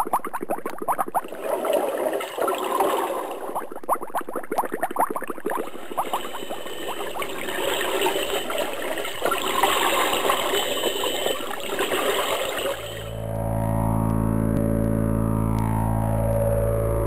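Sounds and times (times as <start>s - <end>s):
underwater air bubbles bubbling: 0.0s - 13.2s.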